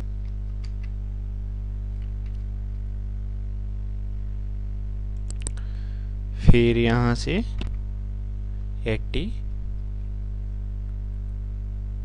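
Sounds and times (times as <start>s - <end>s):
electrical hum with buzz: 0.0s - 12.0s
computer keyboard clicks: 0.2s - 1.0s.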